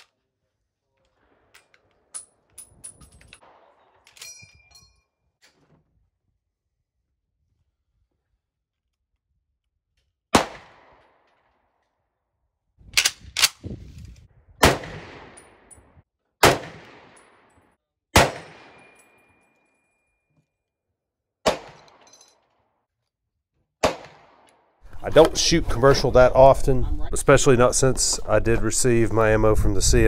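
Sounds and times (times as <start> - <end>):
rifle shots with echo: 10.3 - 11.2, 14.6 - 15.7, 16.4 - 17.5, 18.2 - 19.0, 21.4 - 22.0, 23.8 - 24.5.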